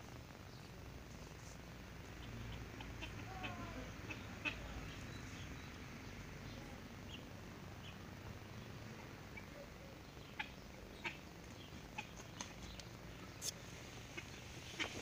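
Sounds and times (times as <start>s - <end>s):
chickens clucking: 2.0s - 5.5s, 9.3s - 15.0s.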